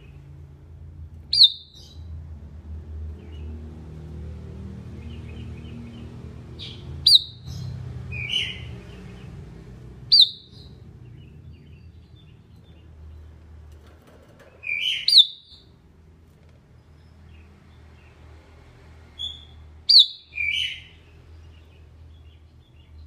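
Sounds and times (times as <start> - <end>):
soft bird chirps: 1.3 - 2.1, 5.0 - 9.5, 10.1 - 18.3, 19.2 - 23.0.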